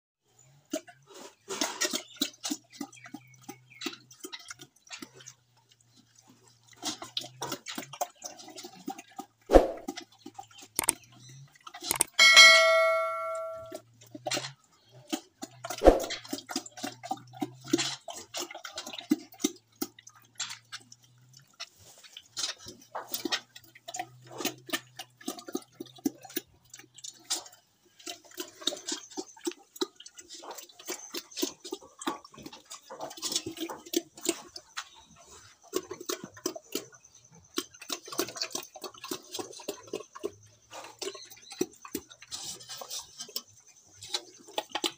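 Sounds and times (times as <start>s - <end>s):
pig chomping and smacking: 0.7s - 12.1s, 14.0s - 44.9s
steel bowl ringing: 12.1s - 13.8s.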